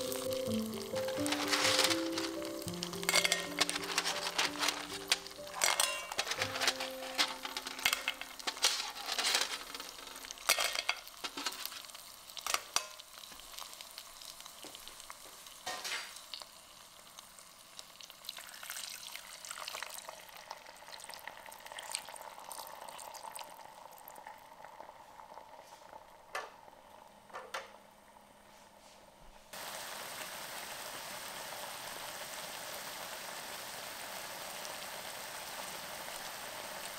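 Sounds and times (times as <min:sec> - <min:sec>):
clams clacking into pan: 0:00.0 - 0:13.1
fish frying in oil: 0:00.0 - 0:26.9, 0:29.6 - 0:36.9.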